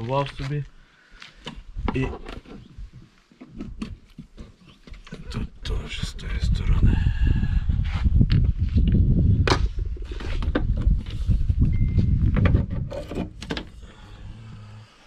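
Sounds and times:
low microphone rumble: 5.2 - 15.0.

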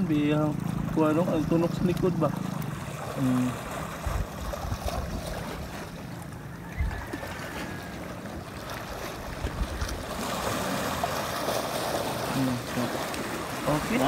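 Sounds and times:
sea water washing: 0.0 - 14.0
wind rumble on microphone: 1.7 - 7.9, 8.9 - 11.2.

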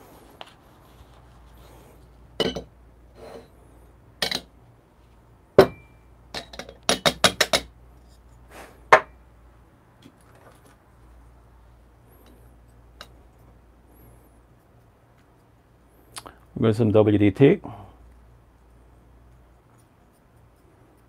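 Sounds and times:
sharp metal knock with ring: 5.6 - 6.0.

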